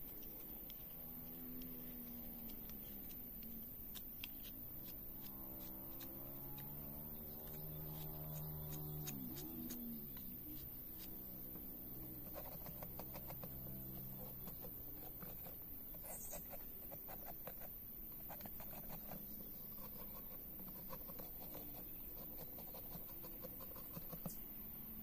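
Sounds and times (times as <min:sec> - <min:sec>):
knife scraping bark: 0:03.9 - 0:11.3.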